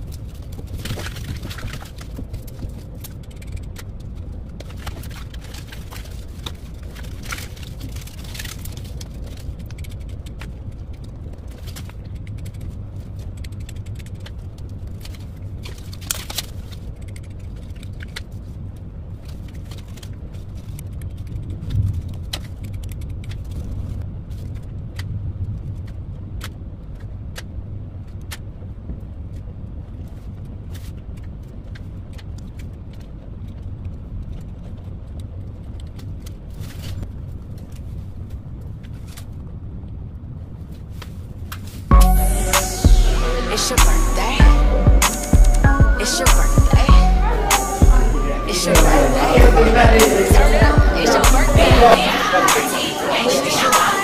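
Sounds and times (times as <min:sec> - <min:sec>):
craft pieces clicking and rattling: 0:00.0 - 0:18.4.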